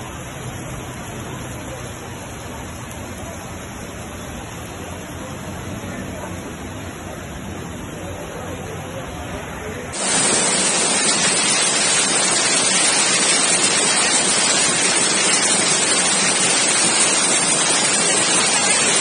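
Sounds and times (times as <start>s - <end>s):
floodwater rushing: 10.0s - 19.0s.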